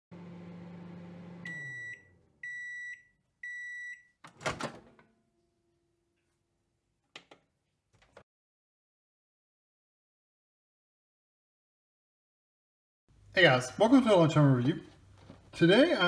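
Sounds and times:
microwave oven humming: 0:00.1 - 0:02.7
microwave door opening clunk: 0:04.3 - 0:05.0.

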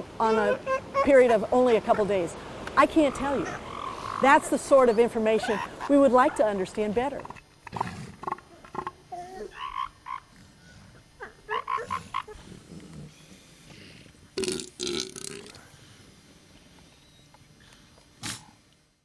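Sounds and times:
seals croaking and grunting: 0:02.9 - 0:04.6, 0:07.1 - 0:14.1.

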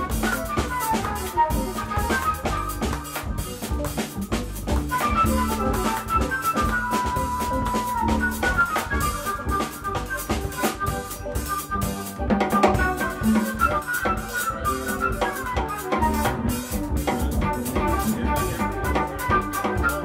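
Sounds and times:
electronic keyboard: 0:00.0 - 0:18.6
drum kit with rimshots: 0:00.0 - 0:20.0
jazz band playing: 0:00.0 - 0:20.0.

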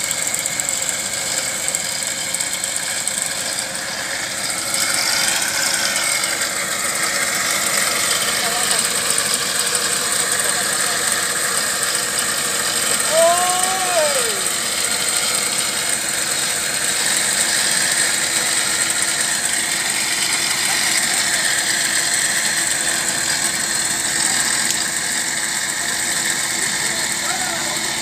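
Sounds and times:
vehicle engine running: 0:00.0 - 0:28.0.

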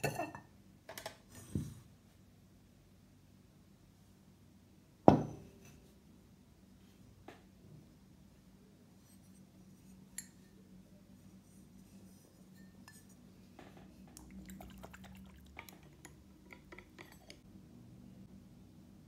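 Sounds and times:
ceramic dish clinking and tapping: 0:00.0 - 0:00.5.

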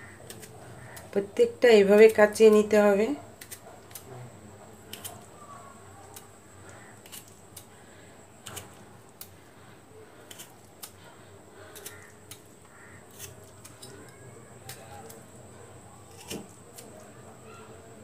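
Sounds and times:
metal fork pricking gooseberries: 0:04.8 - 0:07.7, 0:11.6 - 0:15.4.

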